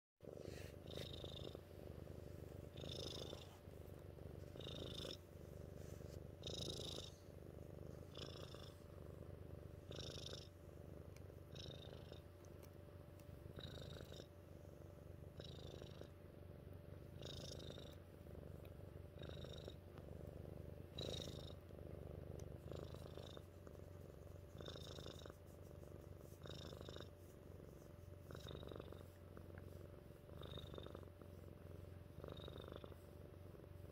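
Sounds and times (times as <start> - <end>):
cat purring: 0.2 - 33.9.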